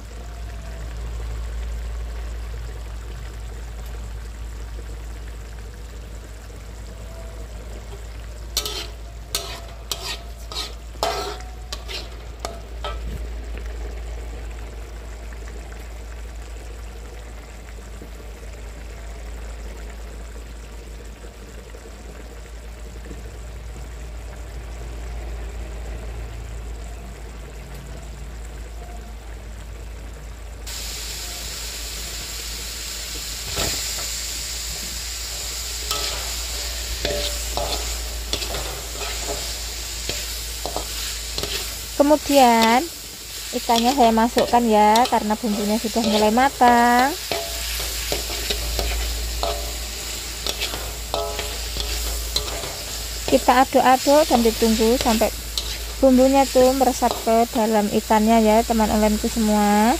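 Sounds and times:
loud sizzling hiss: 0:00.0 - 0:59.9
paste sizzling in a wok: 0:00.0 - 0:59.9
metal spatula scraping wok: 0:08.5 - 0:13.2, 0:33.5 - 0:58.2.

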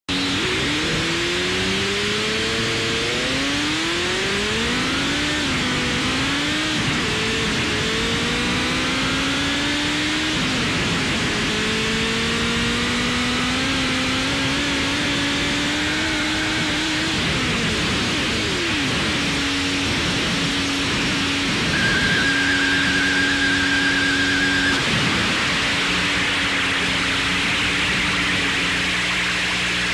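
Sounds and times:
car engine accelerating: 0:00.0 - 0:29.9
loud static hiss: 0:17.8 - 0:29.9.

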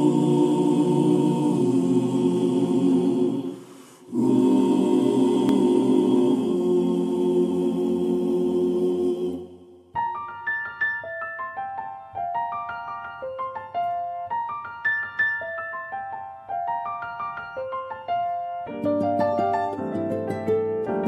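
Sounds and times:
choir-like voices holding chords: 0:00.0 - 0:10.0.

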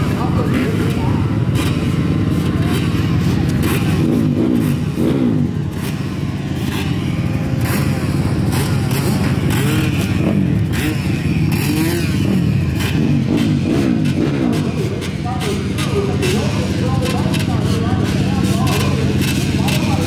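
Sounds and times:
dirt bike engines revving: 0:00.0 - 0:20.0.

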